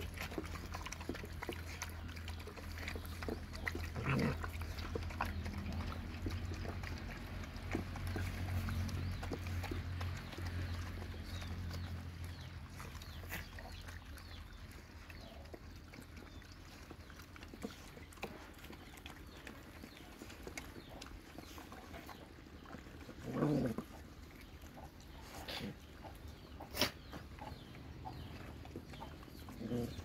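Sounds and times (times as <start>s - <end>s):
dog growling: 0.0s - 7.0s, 22.7s - 24.1s, 29.4s - 30.0s
dogs chewing and lapping: 0.0s - 30.0s.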